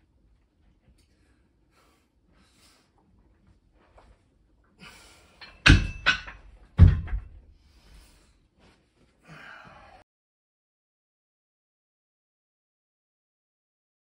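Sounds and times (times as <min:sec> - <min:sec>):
heavy breathing: 0:01.0 - 0:03.2, 0:04.7 - 0:05.6, 0:07.5 - 0:10.1
dumbbells thudding on carpet: 0:05.6 - 0:07.5.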